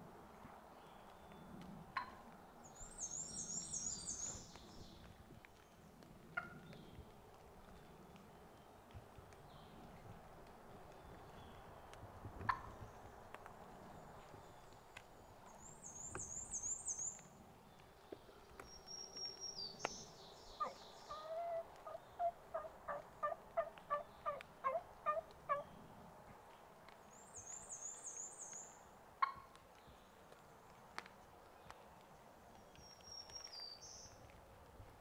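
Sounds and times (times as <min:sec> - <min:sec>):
turkey hen yelping: 0:20.6 - 0:25.6.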